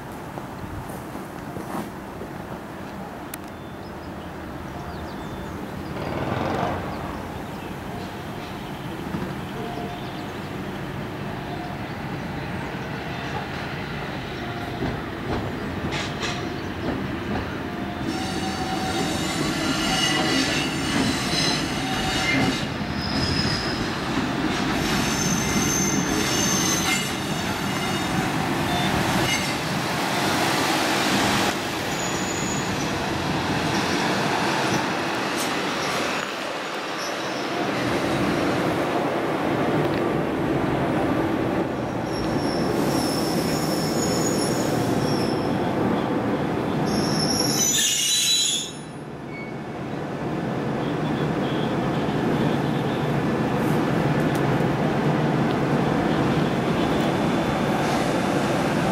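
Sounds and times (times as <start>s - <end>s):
train rumbling past on rails: 4.0s - 58.9s
train wheels squealing: 17.7s - 30.3s, 31.9s - 33.0s, 36.9s - 37.9s, 41.9s - 46.1s, 46.7s - 49.6s.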